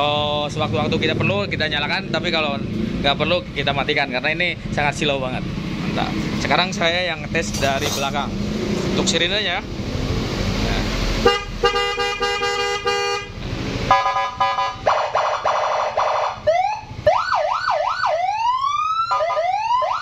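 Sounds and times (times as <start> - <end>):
siren blares trills and wails: 13.9 - 20.0.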